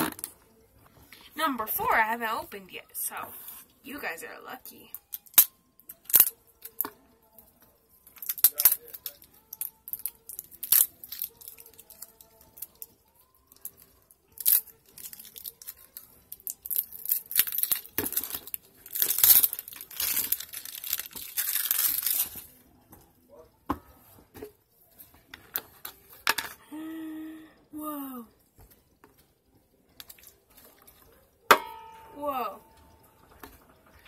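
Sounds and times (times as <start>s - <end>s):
plastic wrapping tearing and crinkling: 8.2s - 22.6s.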